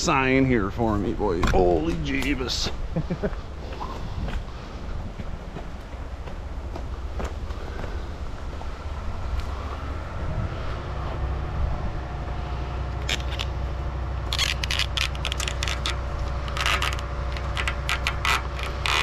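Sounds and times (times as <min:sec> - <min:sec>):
low engine hum: 0:00.0 - 0:19.0
footsteps crunching on gravel: 0:03.7 - 0:09.6.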